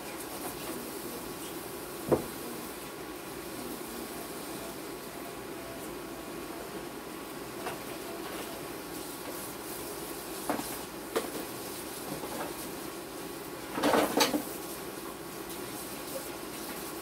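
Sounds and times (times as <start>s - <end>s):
dishes knocking and clattering: 13.7s - 14.5s.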